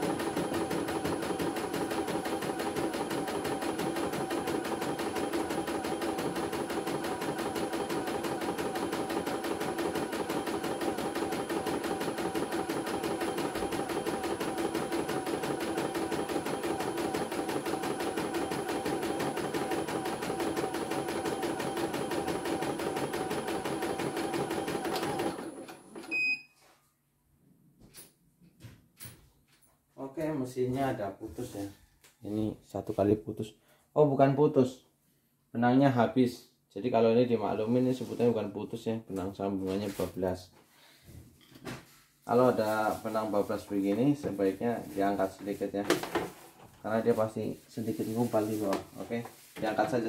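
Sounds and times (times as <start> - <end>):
embroidery machine stitching: 0.0 - 26.1.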